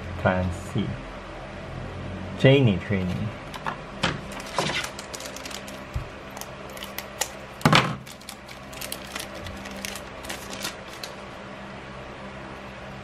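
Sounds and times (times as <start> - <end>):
foil wrapper crinkling: 4.3 - 11.2.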